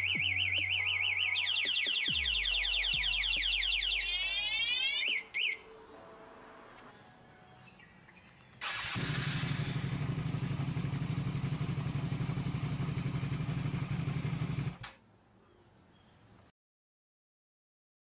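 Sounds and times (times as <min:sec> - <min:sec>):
motorcycle engine starting and idling: 0:08.6 - 0:15.0.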